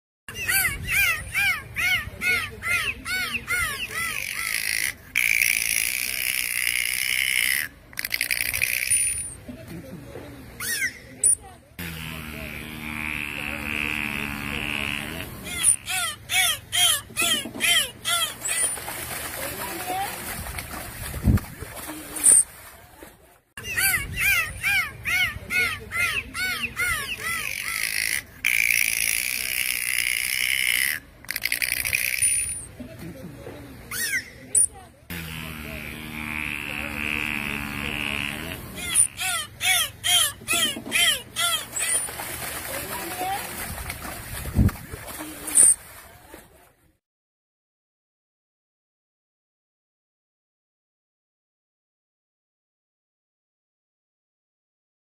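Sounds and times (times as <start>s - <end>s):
dolphin chirps: 0.3s - 9.4s, 14.7s - 18.9s, 23.6s - 32.7s, 33.9s - 34.8s, 38.0s - 42.2s
dolphin clicks: 4.1s - 9.4s, 27.3s - 32.7s.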